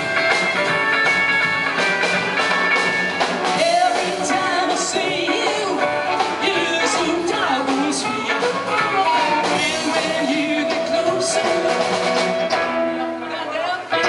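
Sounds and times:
strummed guitar: 0.0s - 14.0s
upright double bass: 0.0s - 14.0s
lead vocal singing: 3.5s - 14.0s.

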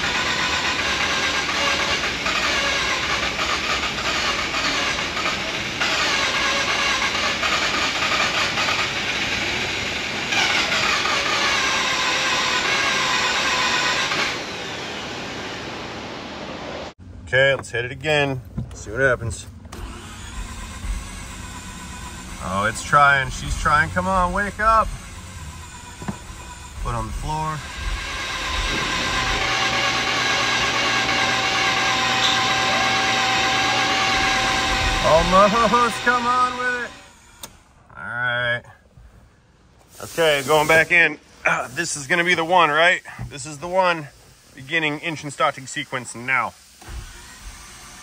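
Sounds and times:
engine cranking by starter: 0.0s - 14.5s, 18.4s - 37.8s, 46.6s - 48.0s.

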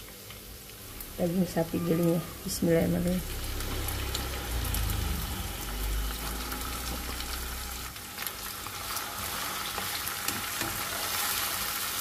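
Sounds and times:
meat sizzling in oil: 0.0s - 12.0s
low rumble: 0.7s - 8.0s.

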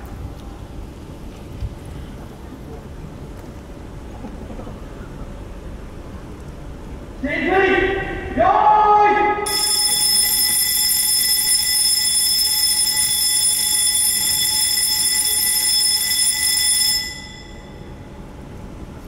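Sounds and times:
electric alarm bell ringing: 9.4s - 18.2s.

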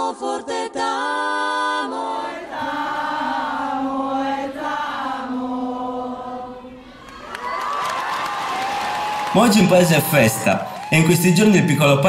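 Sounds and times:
choir chanting: 0.0s - 7.4s.

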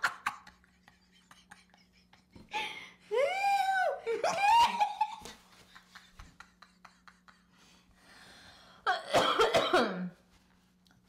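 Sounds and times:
woman coughing: 8.9s - 10.2s.

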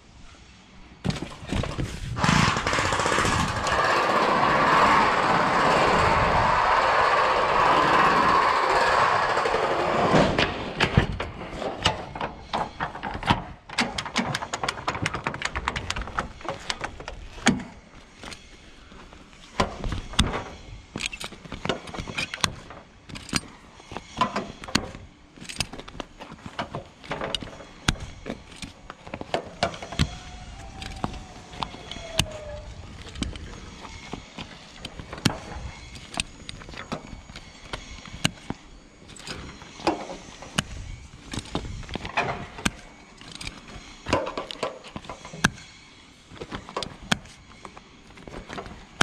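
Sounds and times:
metal strap buckles clacking: 11.8s - 45.7s.

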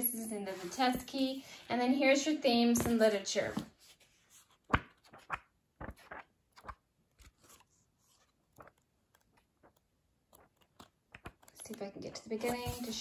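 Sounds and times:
book pages flipping: 2.8s - 13.0s.

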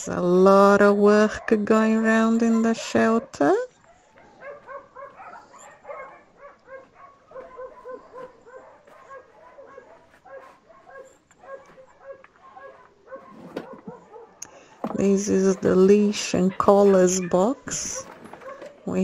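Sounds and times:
dog yapping: 2.6s - 14.4s, 16.7s - 18.8s.

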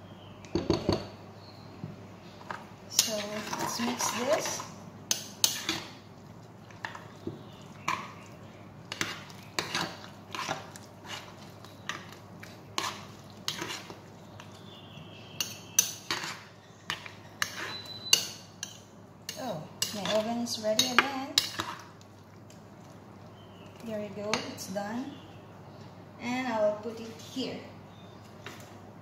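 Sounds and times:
utensil stirring in glass bowl: 3.0s - 14.6s.

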